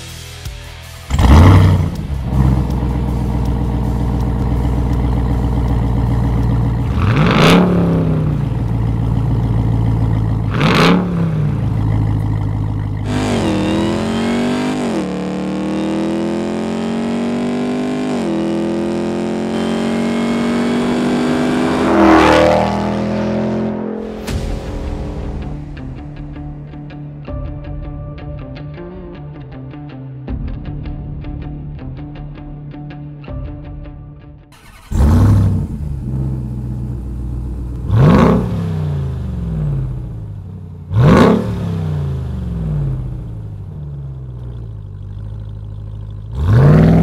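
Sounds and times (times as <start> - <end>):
truck engine revving: 1.0 - 24.4, 34.6 - 47.0.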